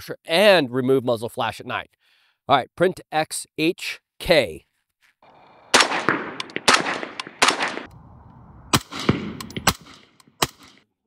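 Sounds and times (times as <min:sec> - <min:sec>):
suppressed rifle shots: 0:05.4 - 0:08.0, 0:08.7 - 0:10.8.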